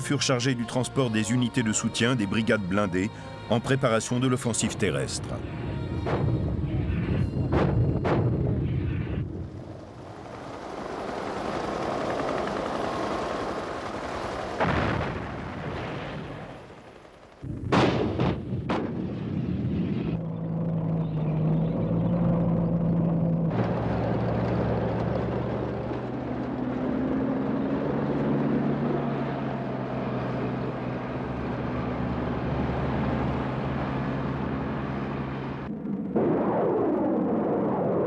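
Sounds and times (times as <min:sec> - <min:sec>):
engine drone: 0:04.6 - 0:14.8, 0:19.6 - 0:38.0
rumbling battle din: 0:06.0 - 0:09.6, 0:17.4 - 0:20.2.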